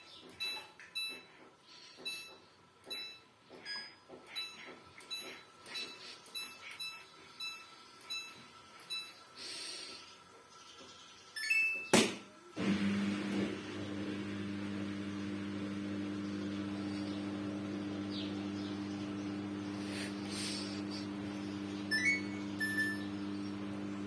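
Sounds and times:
washing machine electric hum: 0:00.0 - 0:24.0
washing machine button beeps: 0:21.8 - 0:23.7.

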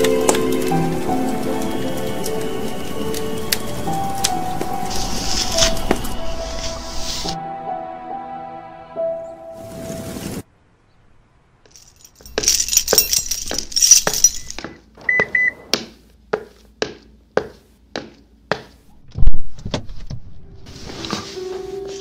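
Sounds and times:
jangling rattling clatter: 0:11.7 - 0:14.6.

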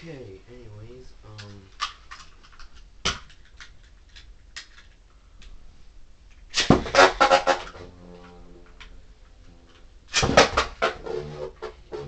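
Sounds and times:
sharp knock: 0:06.6 - 0:07.6, 0:10.1 - 0:11.0.

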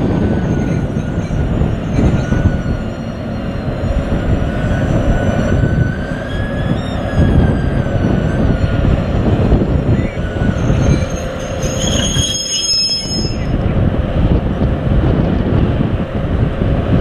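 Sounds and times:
high-pitched wheel squeal: 0:00.0 - 0:13.6
diesel locomotive engine running: 0:00.0 - 0:17.0.

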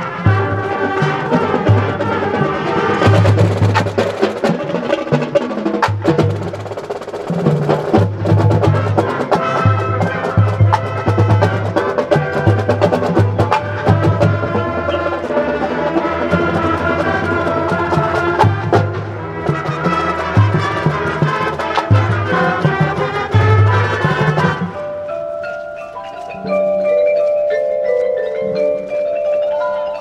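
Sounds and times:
brass and saxophones holding chords: 0:00.0 - 0:05.0, 0:08.2 - 0:25.1
marching band playing: 0:00.0 - 0:30.0.

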